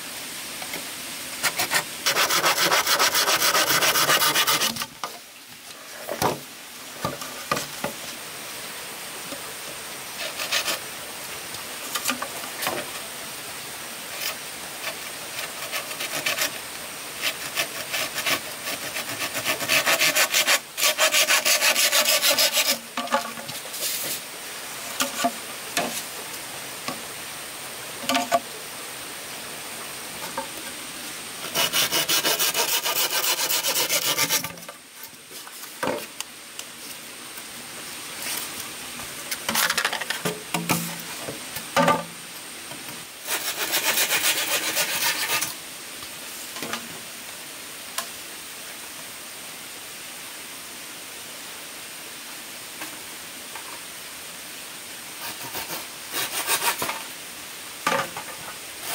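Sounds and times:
hand tool rasping on wood: 0:01.4 - 0:04.8, 0:10.2 - 0:10.8, 0:14.9 - 0:16.6, 0:17.2 - 0:22.8, 0:31.4 - 0:34.5, 0:43.3 - 0:45.5, 0:55.2 - 0:57.0.

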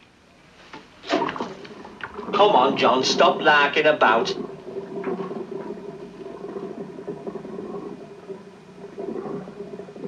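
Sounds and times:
low steady hum: 0:00.0 - 0:10.0
bathwater bubbling and gurgling: 0:00.4 - 0:10.0
small water pops: 0:00.7 - 0:02.4.

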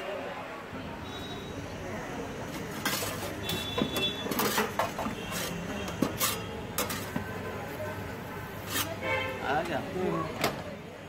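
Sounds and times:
metal spatula scraping wire rack: 0:02.7 - 0:07.2, 0:08.6 - 0:09.0.

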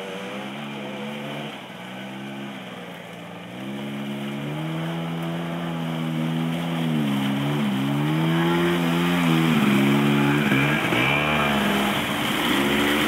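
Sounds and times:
wheels splashing through water: 0:00.0 - 0:13.0
moped engines revving: 0:03.5 - 0:13.0.

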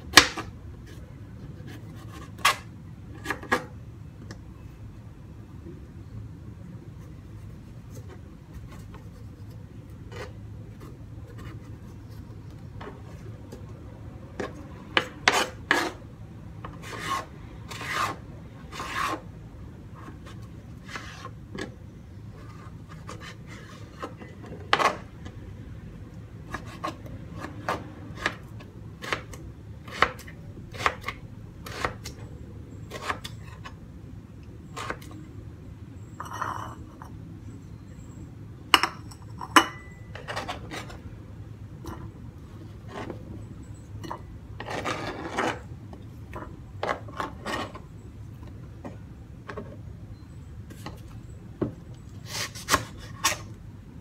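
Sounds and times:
low steady hum: 0:00.0 - 0:54.0
knife cutting on plastic board: 0:26.5 - 0:32.2.

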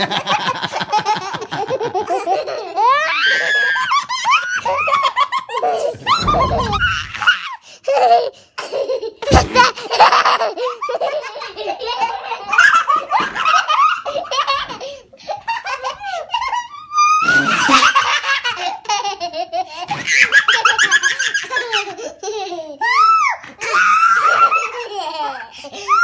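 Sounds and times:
young children laughing: 0:00.0 - 0:26.0
low thump: 0:06.0 - 0:07.2.

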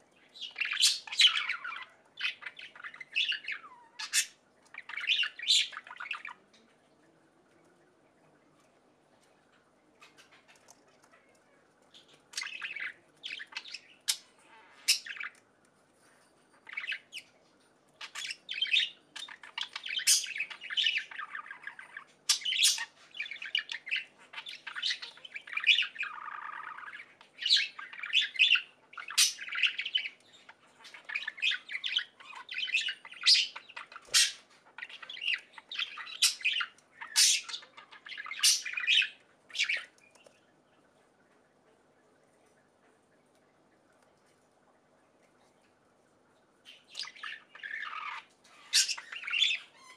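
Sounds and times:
budgerigar chirping: 0:00.4 - 0:06.2, 0:18.0 - 0:30.2, 0:30.8 - 0:39.9, 0:46.7 - 0:49.9.

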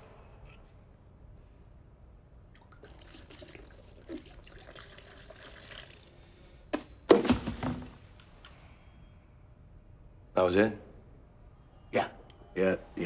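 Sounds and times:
material rattling into plastic bin: 0:07.1 - 0:08.0.

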